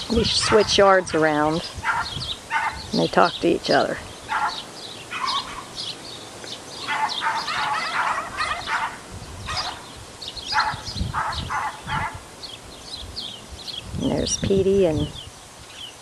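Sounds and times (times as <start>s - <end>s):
small dogs yapping: 0.2s - 0.9s, 1.7s - 3.0s, 4.2s - 5.8s, 6.8s - 9.9s, 10.5s - 12.2s.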